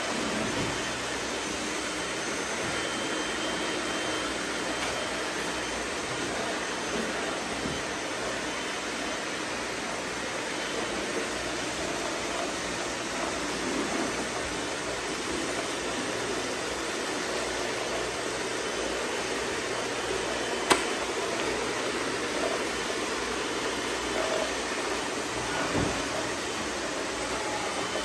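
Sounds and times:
robot vacuum cleaners whirring: 0:00.0 - 0:28.0
sharp click: 0:20.6 - 0:21.0.

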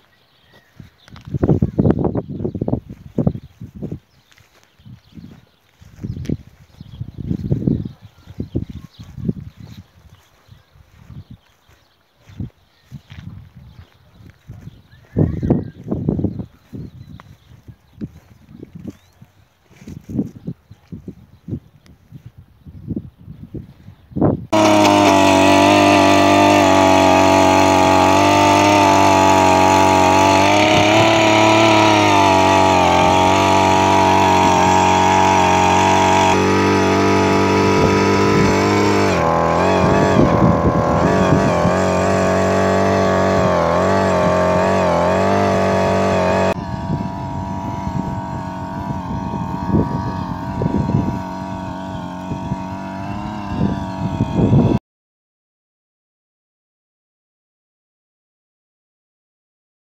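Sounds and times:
earth auger engine running: 0:24.5 - 0:54.8.

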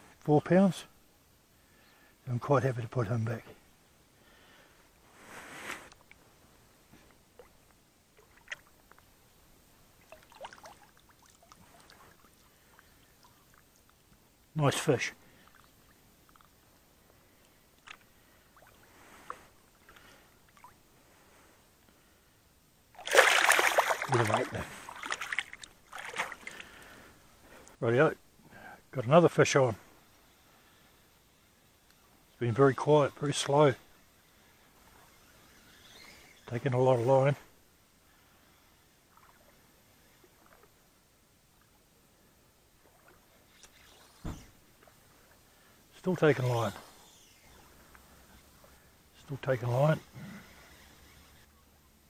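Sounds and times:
faint steady hiss: 0:00.0 - 0:52.0
water lapping around hands: 0:10.0 - 0:14.0, 0:23.0 - 0:26.7
loud fish splash: 0:23.0 - 0:26.5.

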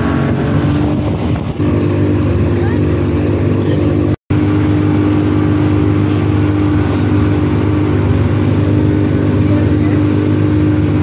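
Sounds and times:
motorboat engine droning: 0:00.0 - 0:11.0
rush of boat wake: 0:00.0 - 0:11.0.

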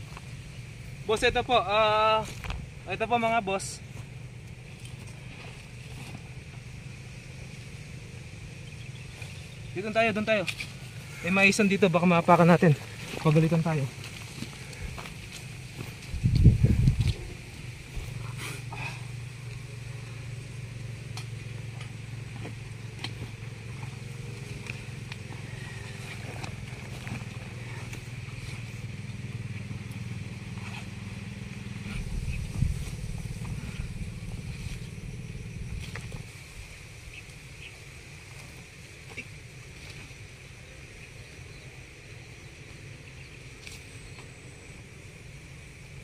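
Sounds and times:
low engine hum: 0:00.0 - 0:46.0.

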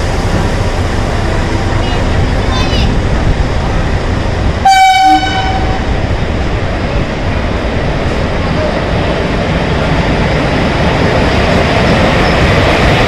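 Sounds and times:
locomotives rumbling along track: 0:00.0 - 0:13.0
locomotive horn blast: 0:04.6 - 0:05.9.

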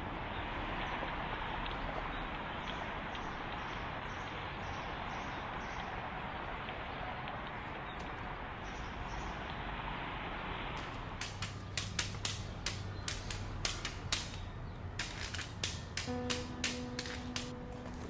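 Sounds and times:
street background noise: 0:00.0 - 0:18.0
footsteps on pavement: 0:15.0 - 0:18.0.

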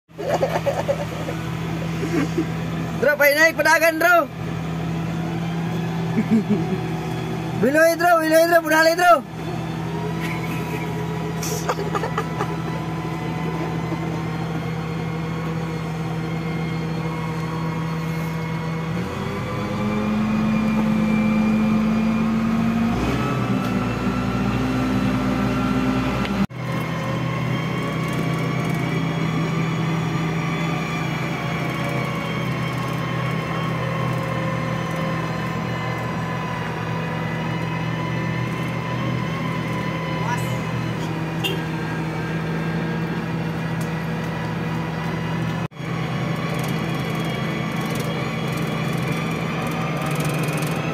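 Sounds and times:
diesel engine running steadily: 0:00.1 - 0:50.9.

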